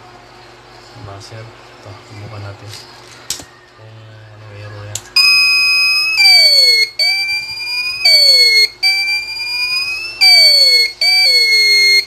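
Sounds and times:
shrill wavering alarm buzzer: 5.2s - 12.0s.

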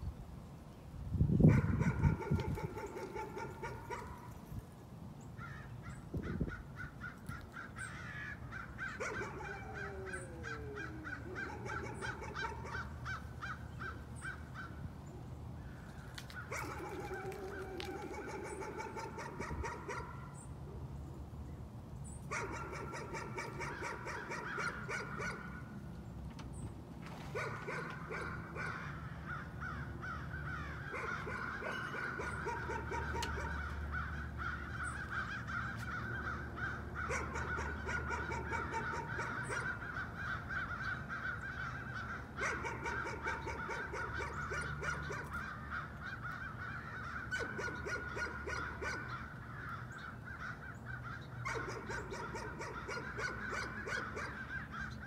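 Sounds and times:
dog barking rapidly: 1.5s - 4.2s, 9.0s - 9.9s, 11.4s - 12.8s, 16.5s - 20.2s, 22.3s - 25.6s, 27.3s - 28.8s, 30.9s - 33.6s, 37.0s - 39.8s, 42.4s - 45.3s, 47.3s - 49.1s, 51.4s - 54.4s.

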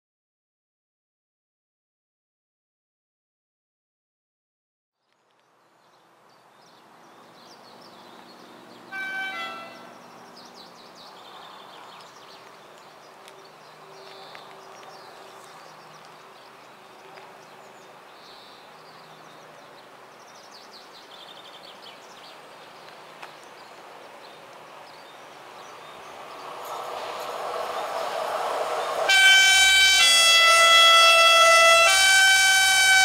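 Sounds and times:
birds chirping: 5.1s - 31.8s
freight train rumble: 25.3s - 33.0s.

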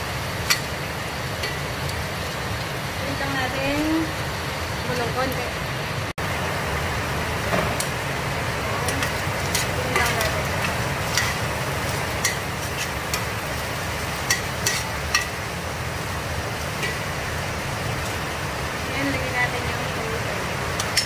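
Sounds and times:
meat sizzling in a pot: 0.0s - 21.0s
spatula clinking on a pot: 0.4s - 0.8s, 8.9s - 11.5s, 12.2s - 13.3s, 14.2s - 15.4s, 20.8s - 21.0s
metal spatula scraping a pot: 8.9s - 13.4s, 14.2s - 15.4s.

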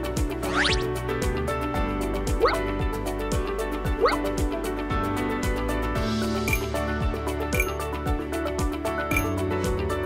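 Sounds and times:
upbeat background music: 0.0s - 10.0s
rising bloop pop effect: 0.5s - 0.8s.

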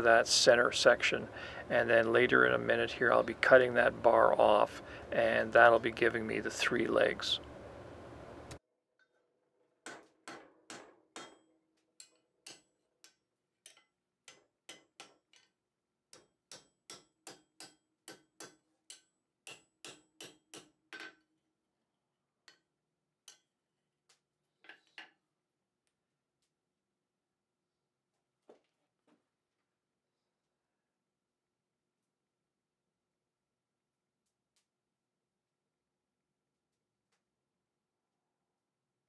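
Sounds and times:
hammer striking iron on anvil: 9.8s - 15.4s, 16.1s - 21.1s, 23.3s - 23.5s.

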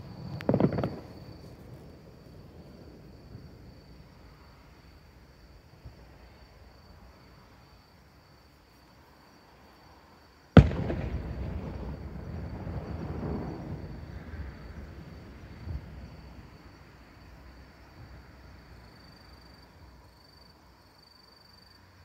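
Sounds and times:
firework bang: 0.0s - 1.5s, 10.6s - 14.7s
insects trilling: 0.0s - 22.0s.

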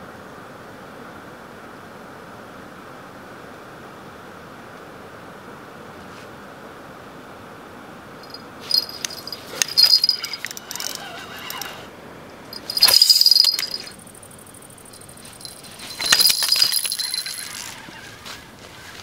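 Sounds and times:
small metal bell jingling: 8.2s - 11.8s, 12.5s - 18.2s.

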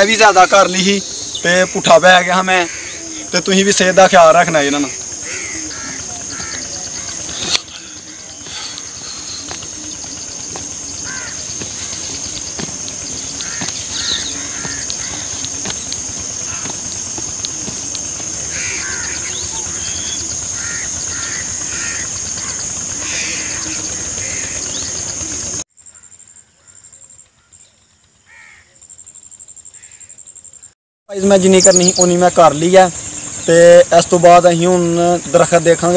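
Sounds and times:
birds calling: 0.0s - 25.6s, 29.7s - 35.9s
insects shrilling: 0.0s - 25.6s.

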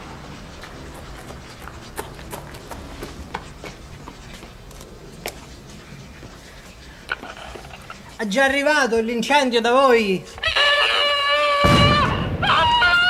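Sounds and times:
footsteps on pavement: 0.0s - 8.7s
low background noise: 0.0s - 13.0s.

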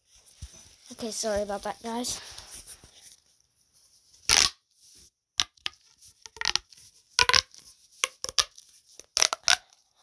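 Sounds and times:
plastic pop tube popping: 4.3s - 4.6s, 5.4s - 9.8s.

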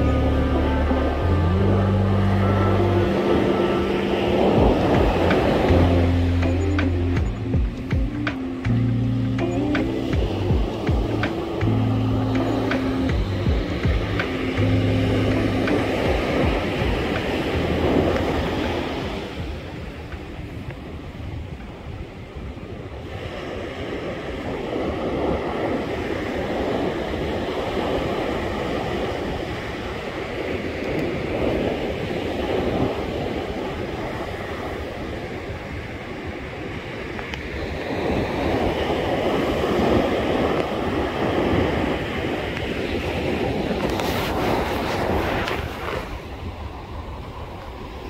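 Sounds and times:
surf breaking on a beach: 0.0s - 48.0s
wind rumbling on microphone: 0.0s - 48.0s.

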